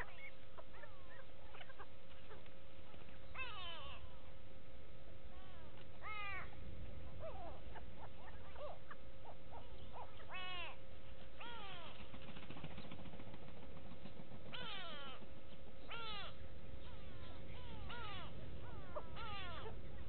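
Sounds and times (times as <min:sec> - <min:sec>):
birds calling: 0:00.0 - 0:20.0.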